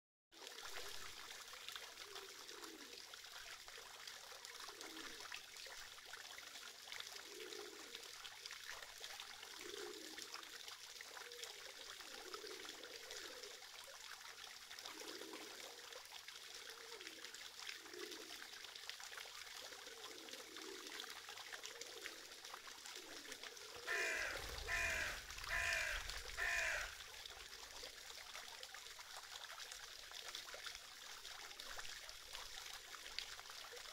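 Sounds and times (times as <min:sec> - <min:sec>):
fountain splashing into basin: 0:00.4 - 0:33.9
crow cawing: 0:23.9 - 0:27.0.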